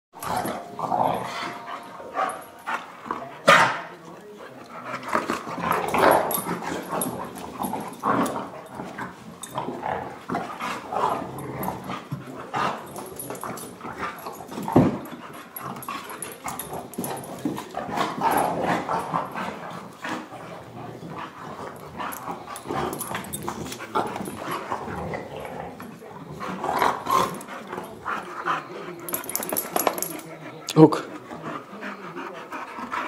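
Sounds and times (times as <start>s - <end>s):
dogs growling and yipping: 0.2s - 3.8s, 4.8s - 30.4s.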